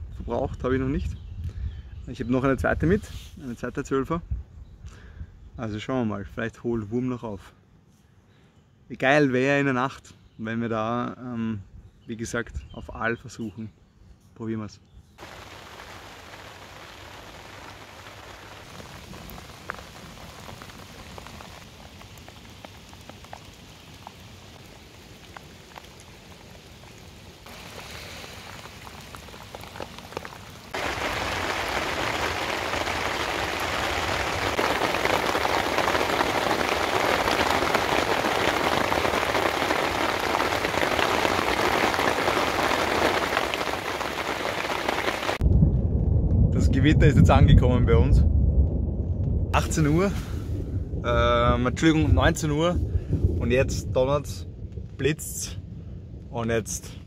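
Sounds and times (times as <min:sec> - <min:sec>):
rain: 0:15.2 - 0:57.0.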